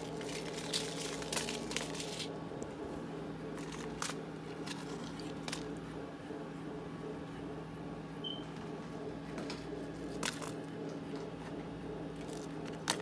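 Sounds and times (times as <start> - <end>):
dried peppers crinkling: 0.0 - 2.3
steady low hum: 0.0 - 13.0.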